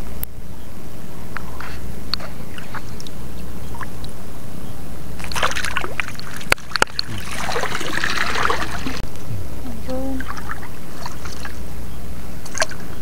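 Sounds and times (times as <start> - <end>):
low rumble: 0.0 - 13.0
seawater sloshing and dripping: 5.2 - 9.0, 10.2 - 11.6, 12.4 - 13.0.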